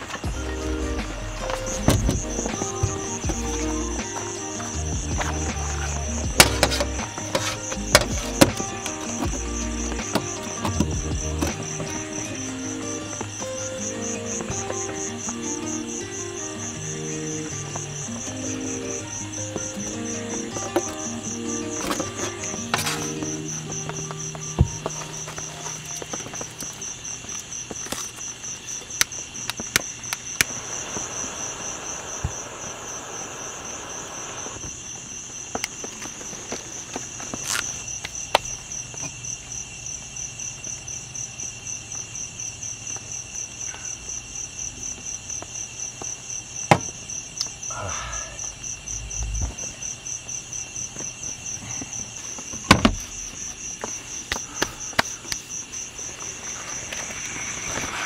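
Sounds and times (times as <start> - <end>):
crickets trilling: 0.0 - 58.0
loud thump: 1.8 - 3.4, 46.7 - 47.0.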